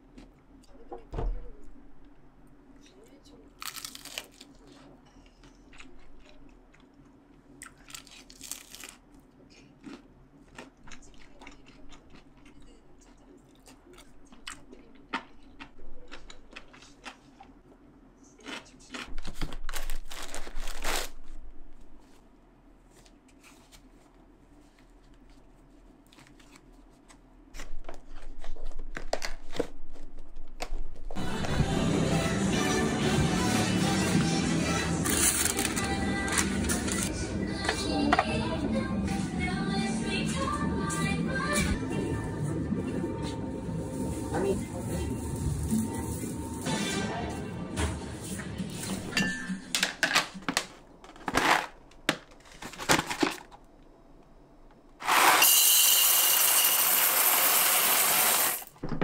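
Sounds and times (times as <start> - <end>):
crispy chewing: 3.6 - 17.6, 18.4 - 20.1
plastic packaging crinkling: 19.2 - 21.4, 35.1 - 37.1.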